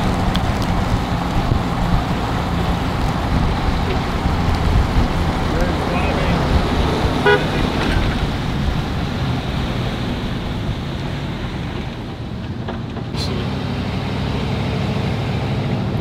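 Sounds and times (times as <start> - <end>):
wind rushing: 0.0 - 12.4
vehicle engine and road noise: 0.0 - 16.0.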